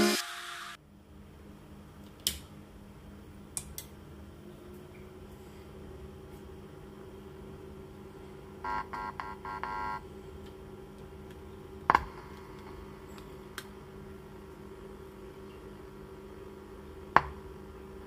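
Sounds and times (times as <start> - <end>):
speaker hum: 0.0 - 18.0
stuttering speaker buzz: 8.6 - 10.0.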